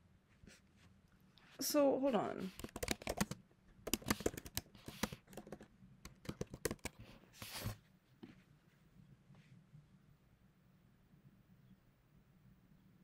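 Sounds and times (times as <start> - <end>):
keyboard typing: 2.5 - 7.2.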